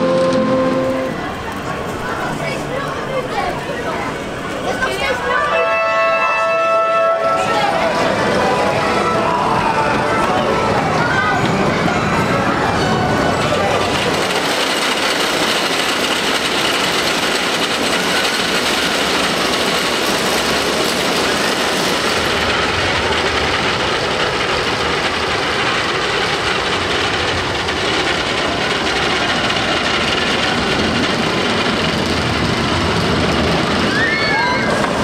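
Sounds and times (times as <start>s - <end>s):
lift chain and wheels clattering: 11.0s - 35.0s.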